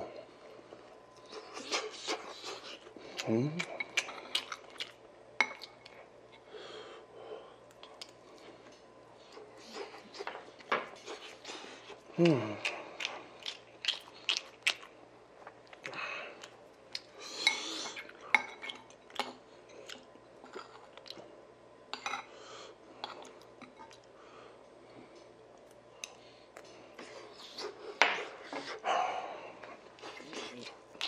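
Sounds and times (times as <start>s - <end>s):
chewing: 1.1s - 6.4s, 7.6s - 21.3s.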